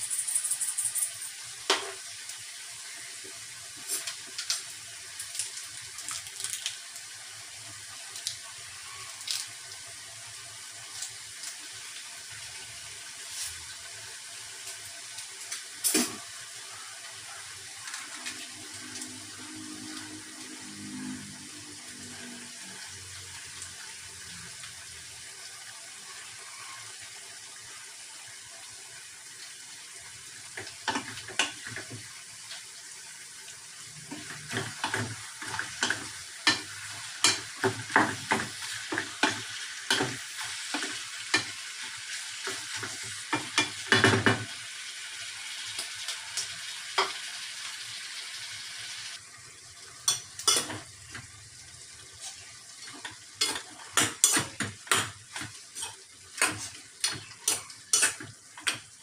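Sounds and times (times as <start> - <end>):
meat sizzling in a pot: 0.0 - 59.0.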